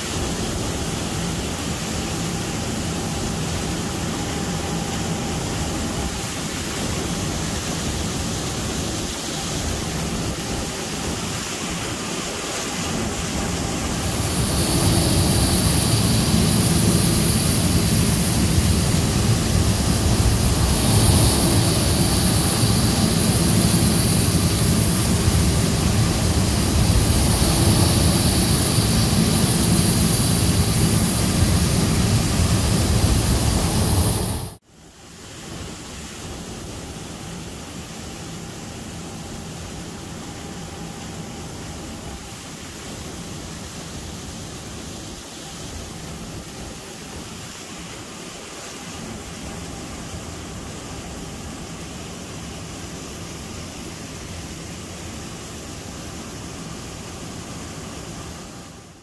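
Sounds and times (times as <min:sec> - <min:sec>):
high whine: 0:00.0 - 0:34.6
combine harvester running: 0:10.8 - 0:34.6.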